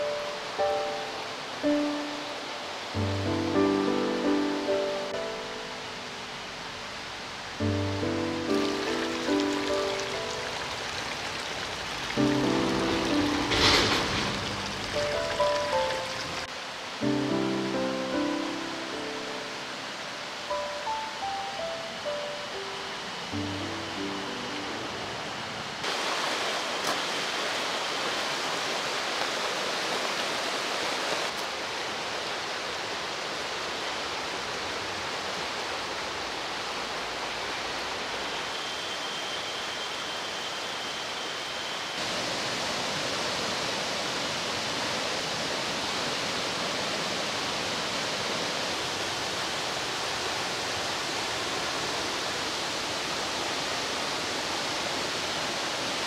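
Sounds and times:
rushing mountain stream: 0:00.0 - 0:56.0.

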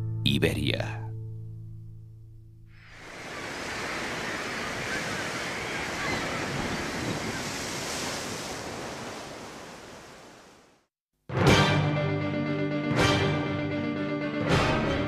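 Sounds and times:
small waves breaking on beach: 0:02.8 - 0:10.9.

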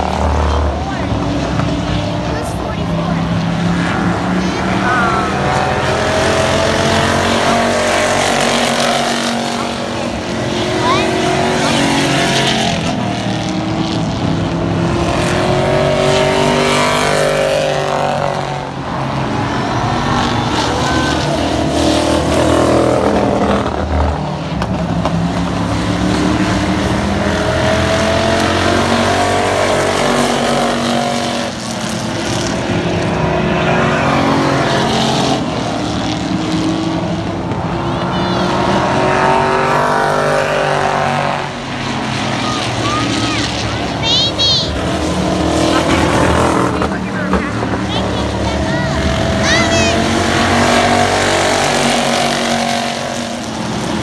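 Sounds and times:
race car engines passing: 0:00.0 - 0:54.0.

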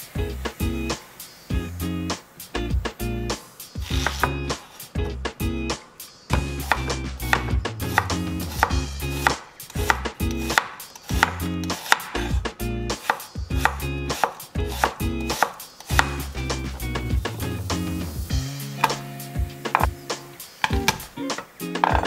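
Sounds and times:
knife slicing onion on wooden board: 0:03.8 - 0:05.2, 0:06.3 - 0:16.8, 0:18.8 - 0:21.1, 0:21.8 - 0:22.0.

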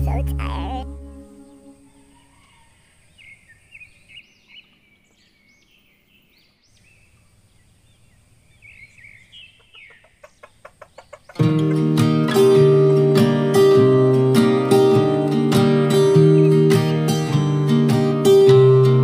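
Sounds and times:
birds chirping: 0:00.0 - 0:11.9.

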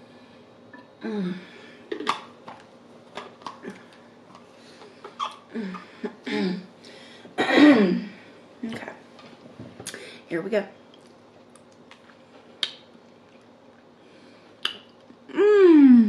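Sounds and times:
woman clearing her throat: 0:07.4 - 0:08.1
woman coughing: 0:07.4 - 0:08.1.

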